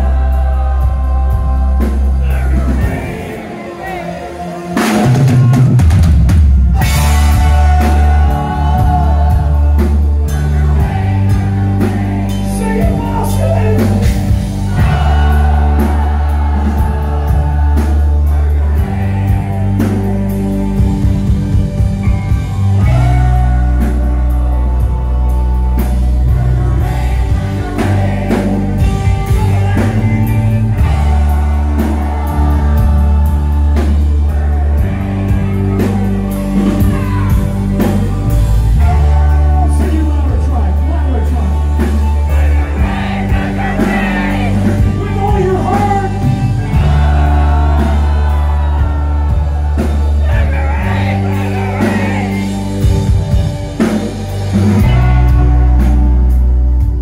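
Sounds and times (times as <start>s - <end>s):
live rock band: 0.0s - 57.0s
person singing: 22.3s - 53.2s.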